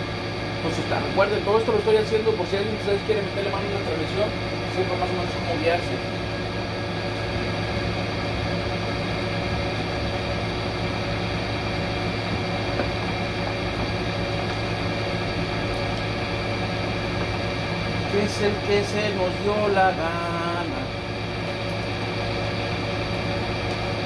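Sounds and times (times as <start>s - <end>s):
motor humming: 0.0s - 24.0s.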